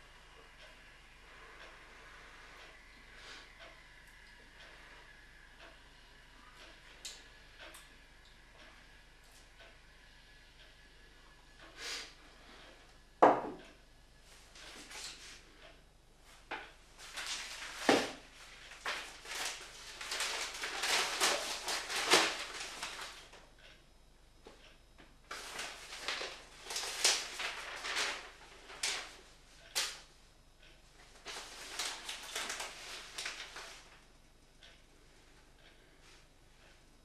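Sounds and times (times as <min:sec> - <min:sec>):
newspaper rustling: 0:17.0 - 0:23.4, 0:25.3 - 0:30.0, 0:31.1 - 0:34.0.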